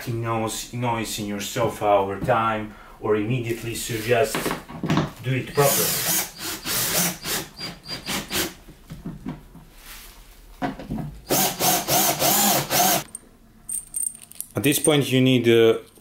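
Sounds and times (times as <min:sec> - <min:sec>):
cordless drill driving screws: 0:05.5 - 0:08.6, 0:11.3 - 0:13.1.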